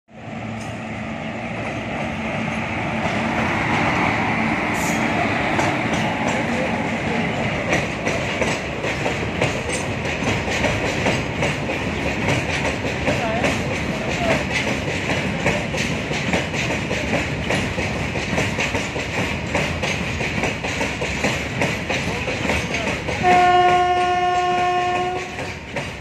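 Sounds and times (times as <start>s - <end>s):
electric locomotive passing: 0.1s - 26.0s
wagon wheels clickety-clack: 7.7s - 26.0s.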